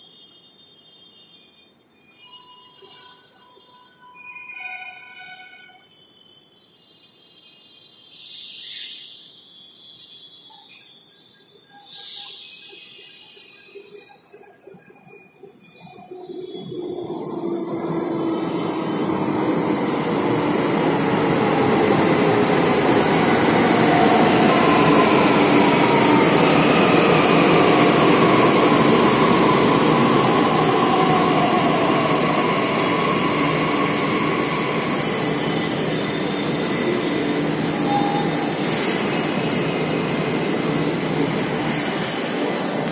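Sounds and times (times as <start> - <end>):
train braking to a stop: 0.0 - 42.9
train doors hissing open: 33.6 - 42.9.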